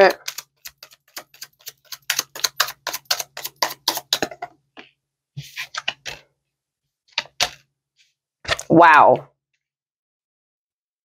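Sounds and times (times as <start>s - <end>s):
card deck rustling: 0.0s - 4.3s
cards being shuffled: 0.0s - 4.3s.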